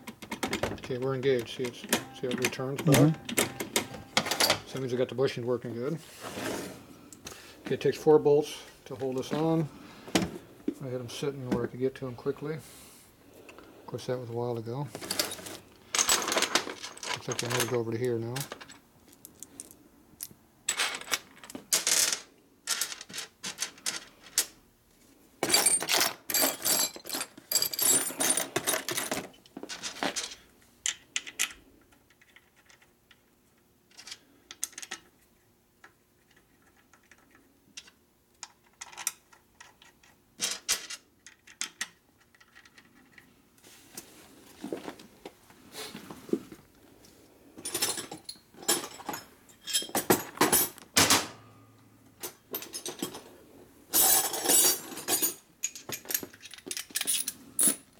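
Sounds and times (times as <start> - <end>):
bolts and tools clinking on metal: 53.9 - 57.9.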